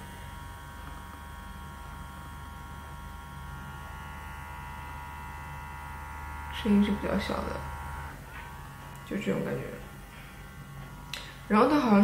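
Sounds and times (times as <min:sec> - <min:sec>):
facial brush buzzing hum: 0:00.0 - 0:12.0.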